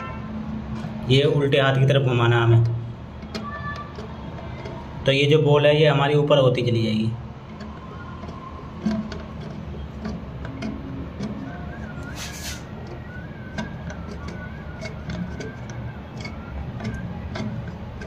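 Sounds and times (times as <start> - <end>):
short hiss: 12.2 - 12.7
plastic nut clicking: 12.8 - 18.0.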